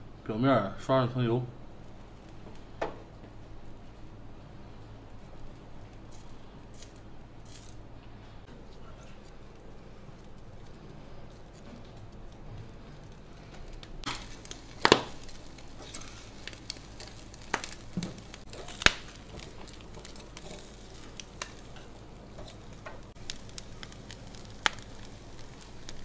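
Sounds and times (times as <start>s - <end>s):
meat sizzling on grill: 5.2s - 7.9s, 13.0s - 26.0s.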